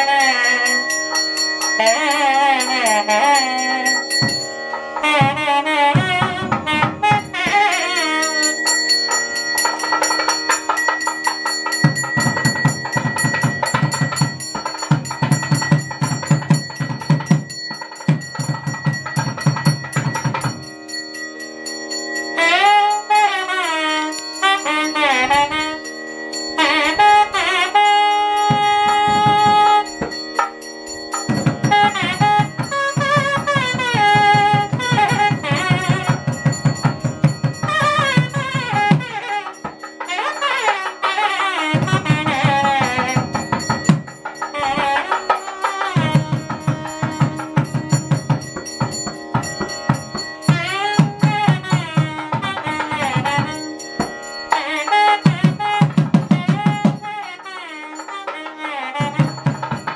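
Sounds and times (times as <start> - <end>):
fast drum strokes: 0.0 - 21.0, 26.6 - 59.9
devotional melody gliding in pitch: 0.0 - 59.9.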